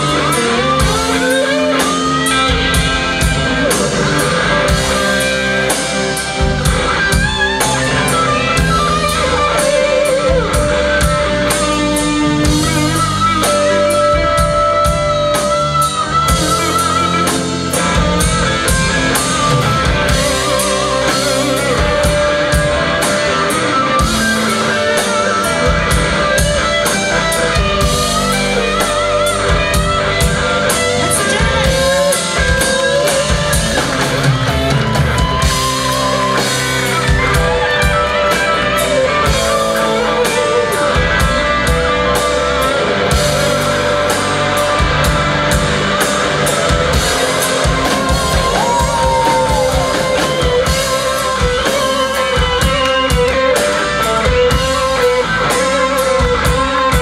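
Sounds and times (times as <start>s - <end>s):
drum kit: 0.0s - 57.0s
electric guitar lead: 0.0s - 57.0s
keyboards: 0.0s - 57.0s.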